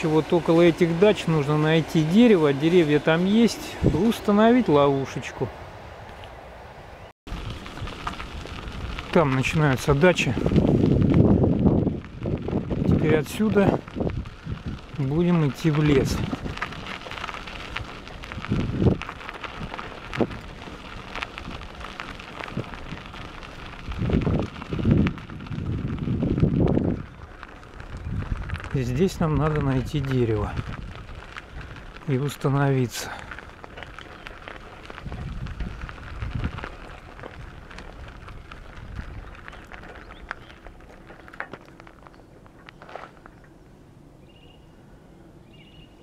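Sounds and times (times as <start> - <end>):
bicycle tyres crunching on gravel: 0.0 - 46.0
low rumble on microphone: 7.3 - 45.9
stones clicking: 27.1 - 43.5.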